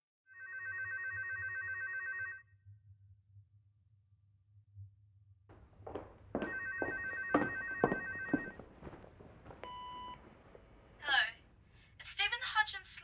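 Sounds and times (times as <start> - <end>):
electronic telephone ringing: 0.3 - 2.4, 6.5 - 8.6.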